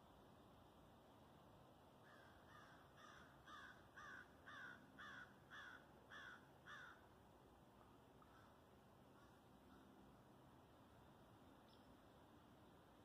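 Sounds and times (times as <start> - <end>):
crow cawing: 2.0 - 7.0, 8.2 - 8.6, 9.2 - 9.8.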